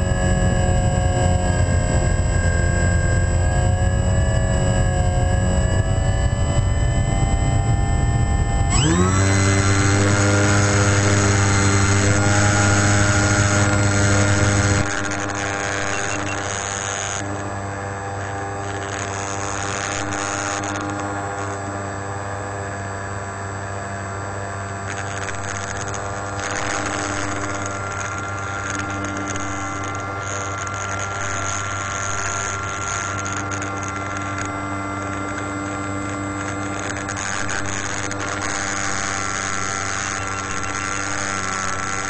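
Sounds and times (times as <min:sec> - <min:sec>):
electric motor and propeller hum: 0:00.0 - 0:42.0.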